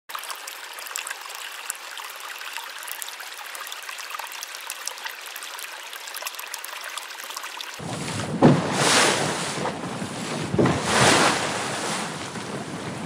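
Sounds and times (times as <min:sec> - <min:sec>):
small splashes and drips: 0:00.1 - 0:07.8
water running down channel: 0:00.1 - 0:12.8.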